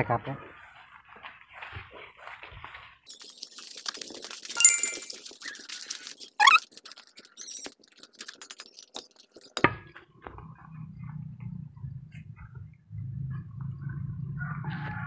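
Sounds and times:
footsteps rustling leaves: 0.5 - 6.2.

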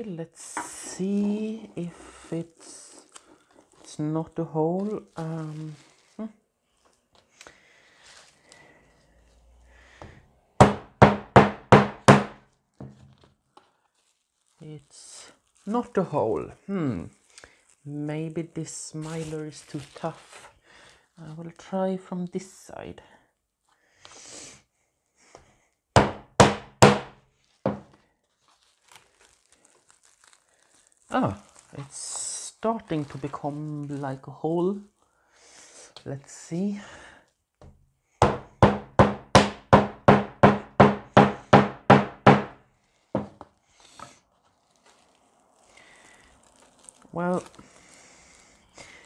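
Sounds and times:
sheet handling: 0.4 - 8.6, 12.5 - 16.2, 27.3 - 34.8, 42.9 - 48.0
rubber mallet striking metal punch: 10.6 - 12.4, 26.0 - 27.1, 38.2 - 42.6.

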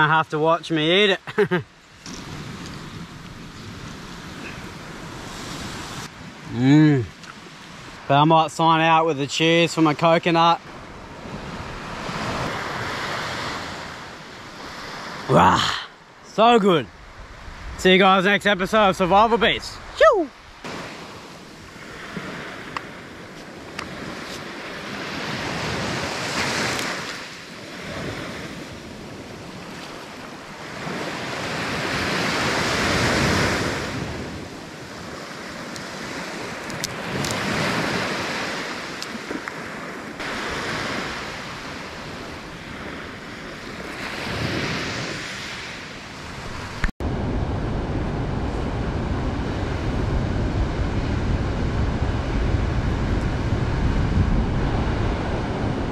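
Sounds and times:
surf washing onto beach: 0.0 - 55.9
wind rumble on microphone: 10.6 - 15.1, 16.9 - 55.9.

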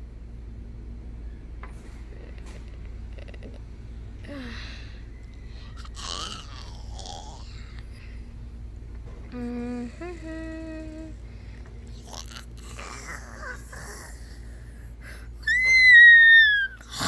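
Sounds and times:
soft mumbled vocal noises: 2.0 - 4.5, 5.8 - 7.9, 9.2 - 11.2, 11.9 - 14.6
person humming: 9.3 - 11.3.

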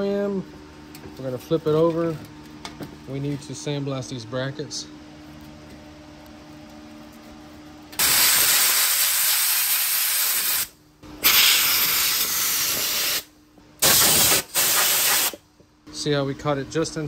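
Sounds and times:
faint hum: 0.0 - 8.6
sandblasting gun hissing: 8.0 - 15.4.

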